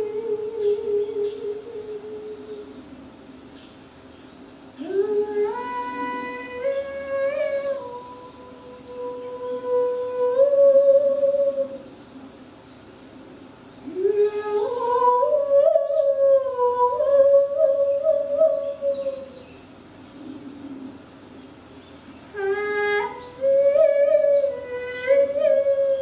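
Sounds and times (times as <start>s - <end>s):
person humming: 0.0s - 2.8s, 4.8s - 11.9s, 13.9s - 19.3s, 22.3s - 26.0s.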